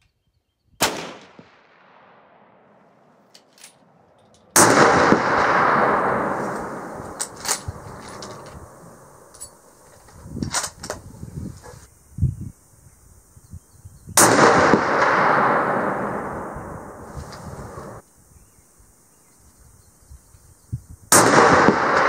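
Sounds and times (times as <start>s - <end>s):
rifle shot with echo: 0.8s - 3.2s, 3.8s - 9.6s, 14.2s - 18.0s, 21.1s - 22.0s
sharp cracks: 0.8s - 11.1s, 14.2s - 18.0s, 21.1s - 22.0s.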